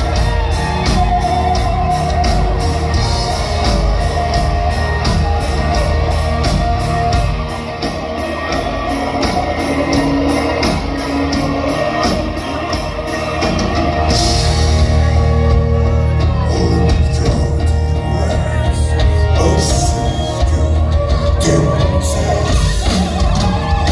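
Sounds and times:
drums: 0.0 - 23.9
guitars: 0.0 - 23.9
man singing: 16.3 - 23.9.

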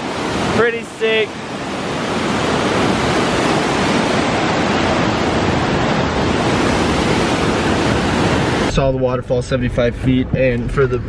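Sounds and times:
waterfall rushing: 0.0 - 8.7.

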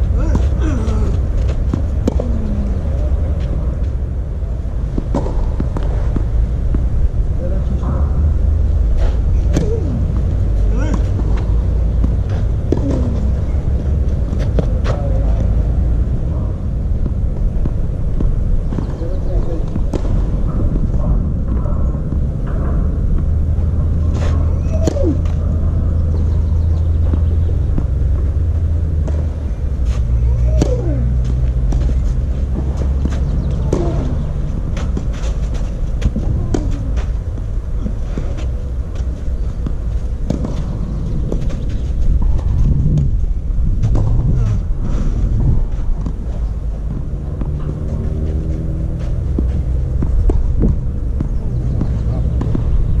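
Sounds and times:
steady low rumble: 0.0 - 53.0
tennis ball struck by racket: 43.8 - 53.0.

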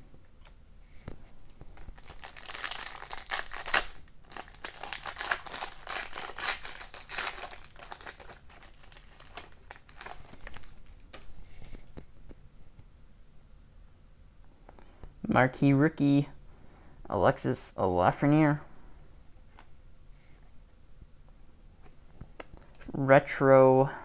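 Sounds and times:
foil wrapper tearing and crinkling: 1.8 - 11.2.

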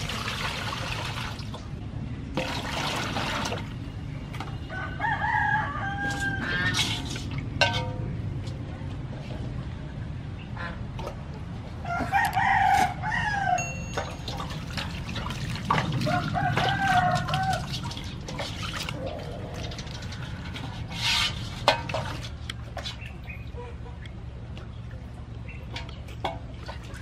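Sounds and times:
water splashing in metal basin: 0.0 - 4.5, 6.1 - 8.2, 13.7 - 23.6, 25.6 - 27.0
rooster crowing: 4.7 - 6.8, 11.8 - 13.8, 16.0 - 17.8.

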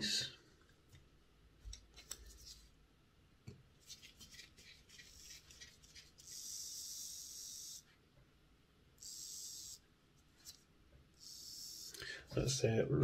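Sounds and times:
model locomotive motor whirring: 6.2 - 7.8, 9.0 - 9.8, 11.2 - 12.0.

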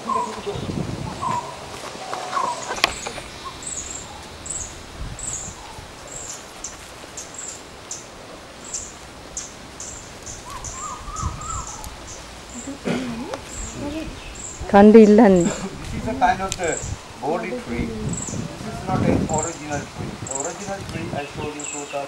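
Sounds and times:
warbling notes: 13.8 - 19.6.

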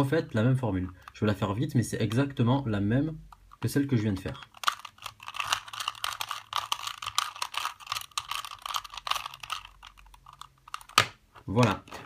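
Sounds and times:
puzzle cube plastic clicks: 3.1 - 12.0.

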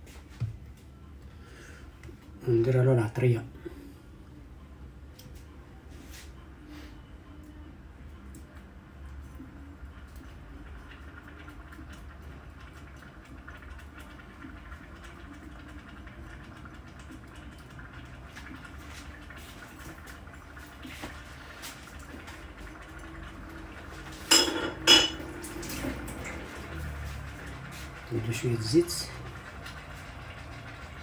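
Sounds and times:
pot cooking with faint crackle: 6.8 - 31.0
kitchenware clanks: 24.3 - 25.3.

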